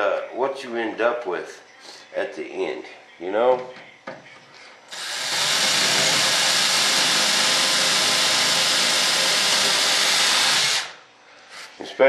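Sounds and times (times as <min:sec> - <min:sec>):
cordless drill drilling: 0:04.9 - 0:11.0.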